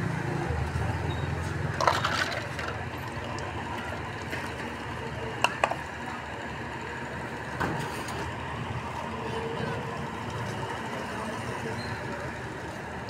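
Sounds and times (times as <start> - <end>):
traffic hum: 0.0 - 13.0
utensils clinking on metal pots: 1.8 - 3.4.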